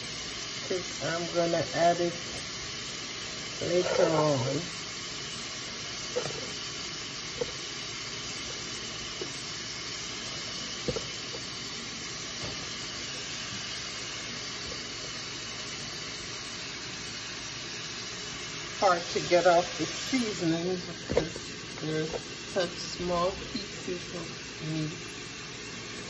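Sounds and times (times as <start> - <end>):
beef sizzling in oil: 0.0 - 26.0
utensil tapping a pot: 10.8 - 11.4.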